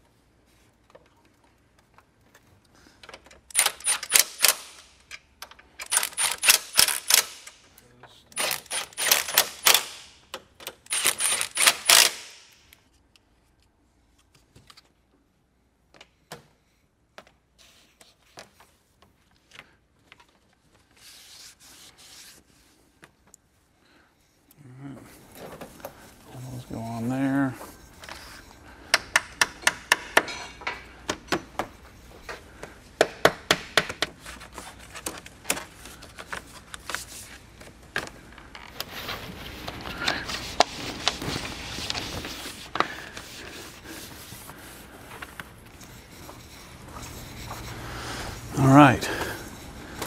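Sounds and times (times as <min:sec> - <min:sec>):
hand ratchet clicking: 0:03.5 - 0:07.6, 0:08.4 - 0:12.5.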